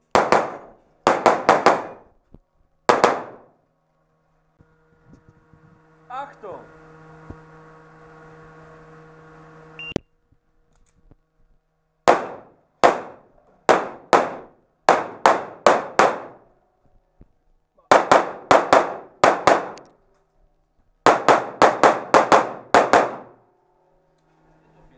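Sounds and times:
pistol shots: 0.1 - 2.1, 2.9 - 3.6, 12.0 - 16.4, 17.9 - 19.8, 21.0 - 23.4.

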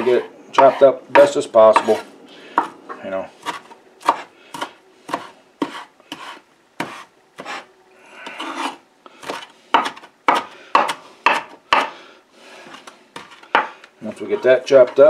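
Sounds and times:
knife scraping board: 0.0 - 2.7, 3.4 - 11.9, 12.6 - 15.0
knife chopping on wooden board: 3.4 - 7.6, 8.6 - 11.9, 12.7 - 13.7.

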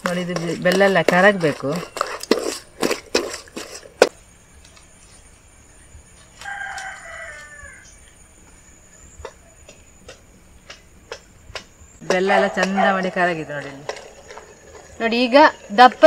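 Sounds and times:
rooster crowing: 6.3 - 8.1.

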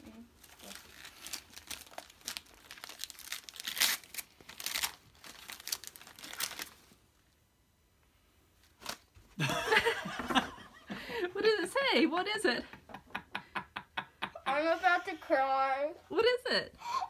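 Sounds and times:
wrapping paper ripping and rustling: 0.1 - 7.0, 8.6 - 9.1.

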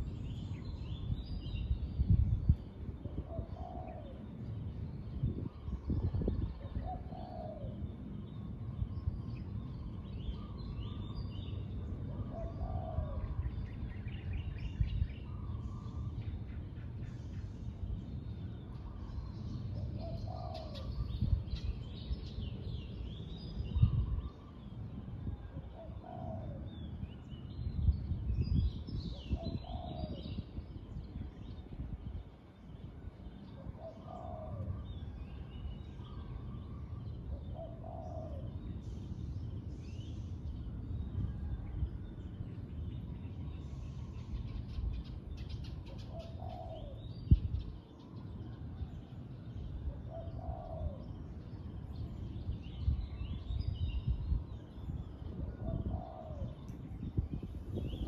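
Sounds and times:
doves cooing: 3.2 - 4.2, 6.6 - 7.8, 12.1 - 13.3, 33.7 - 34.8, 37.4 - 38.5, 45.9 - 47.0, 49.9 - 51.1, 55.4 - 56.6.

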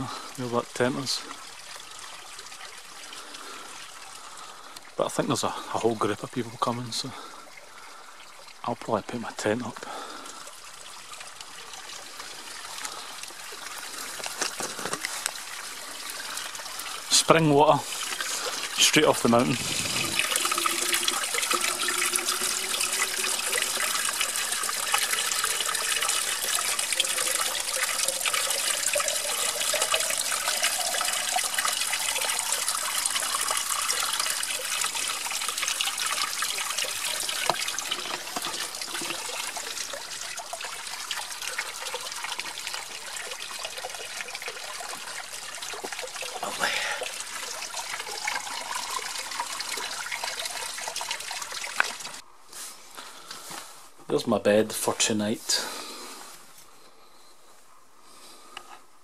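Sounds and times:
water pouring into a bottle: 0.0 - 52.2
water splashing onto stones: 10.0 - 52.2.

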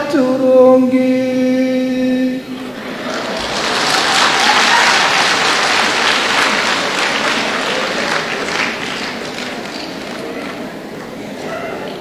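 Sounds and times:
crowd applauding: 2.6 - 12.0.

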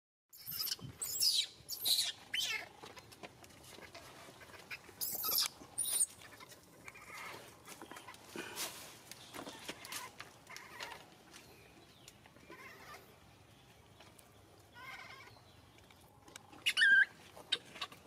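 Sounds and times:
infant monkey distress cries: 0.4 - 2.7, 4.5 - 7.3, 16.6 - 18.0.

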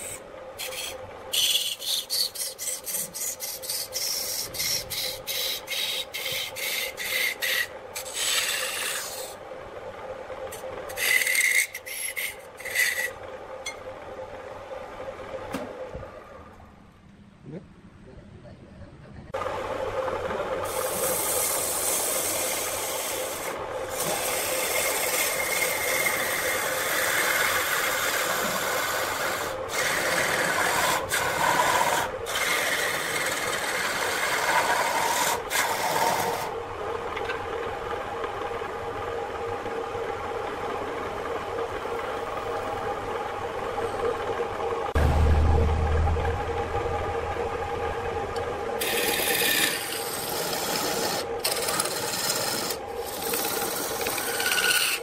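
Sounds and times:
tool rasping against spinning wood: 0.0 - 9.4, 10.9 - 13.2, 20.7 - 36.5, 48.8 - 55.0
wood lathe humming: 0.0 - 14.5, 19.8 - 44.9, 48.4 - 55.0.

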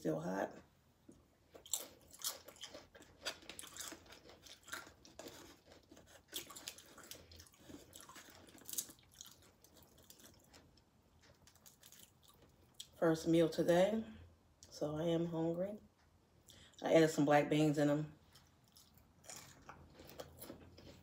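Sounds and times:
person chewing crunchy chips: 1.5 - 13.0, 18.2 - 21.0.

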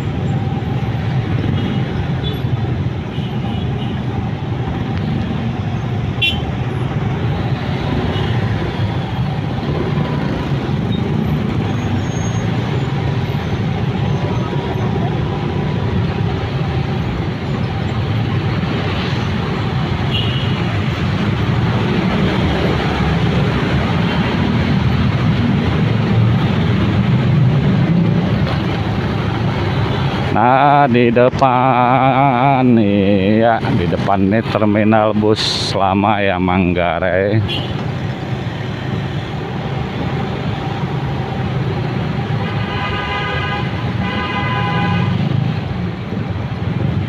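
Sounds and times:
road and wind noise: 0.0 - 47.0
surrounding traffic: 0.0 - 47.0.

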